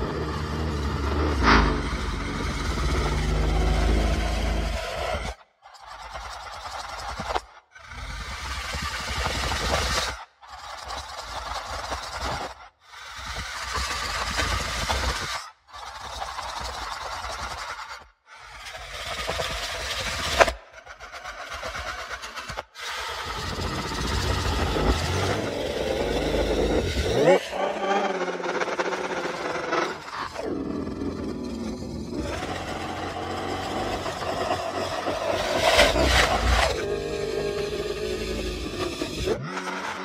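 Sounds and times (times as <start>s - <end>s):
monster growls: 0.0s - 14.2s, 22.8s - 40.0s.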